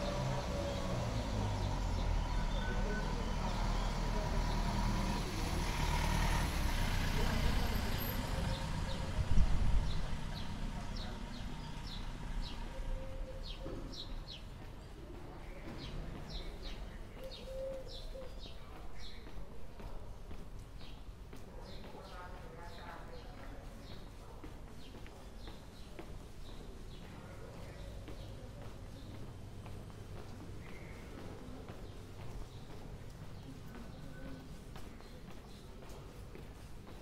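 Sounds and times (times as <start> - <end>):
van engine passing: 0.0 - 13.0
street background noise: 0.0 - 37.0.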